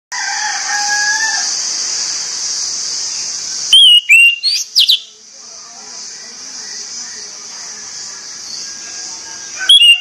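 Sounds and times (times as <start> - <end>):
rooster crowing: 0.1 - 1.6, 8.8 - 10.0
steady high hiss: 0.2 - 10.0
thrush whistling: 3.0 - 5.1, 9.5 - 10.0.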